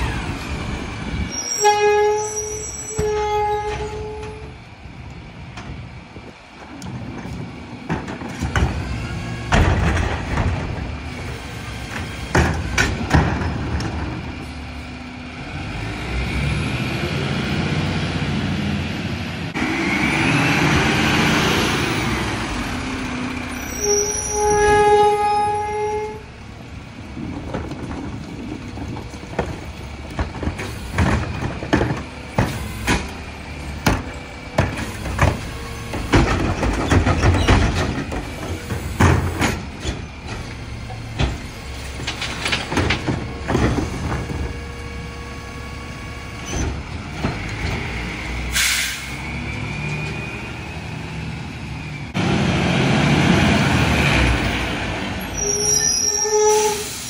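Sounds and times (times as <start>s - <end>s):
bangs and clatters of carts: 6.6s - 14.7s, 27.0s - 50.2s
air brake hiss: 48.5s - 49.2s, 56.5s - 57.0s.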